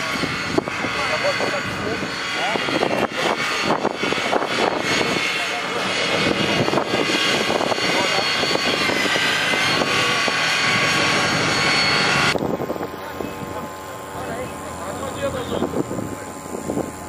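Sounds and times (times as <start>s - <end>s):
voices: 0.0s - 6.7s, 12.4s - 17.0s
engine running under load: 0.0s - 17.0s.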